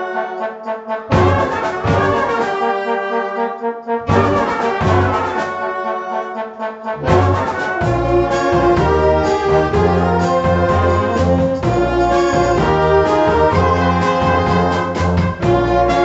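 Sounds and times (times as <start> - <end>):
wind band playing held chords: 0.0 - 16.0
low bass notes: 1.1 - 2.4, 4.0 - 5.4, 7.0 - 16.0.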